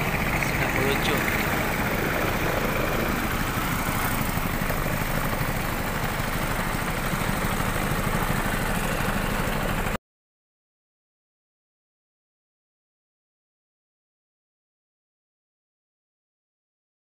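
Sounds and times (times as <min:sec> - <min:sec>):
engine running with flutter: 0:00.0 - 0:10.0.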